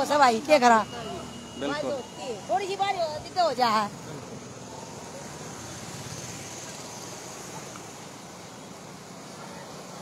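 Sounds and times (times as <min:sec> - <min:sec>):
traffic noise: 0:00.0 - 0:10.0.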